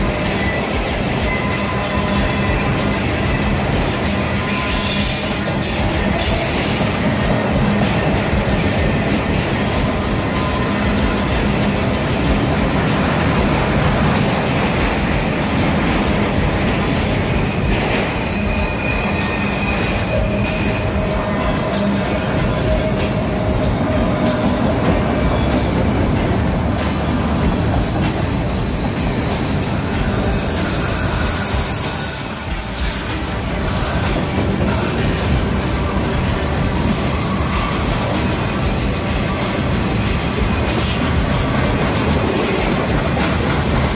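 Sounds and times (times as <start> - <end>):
freight train wheels rumbling: 0.0 - 43.9
thin wheel squeal: 17.3 - 24.4.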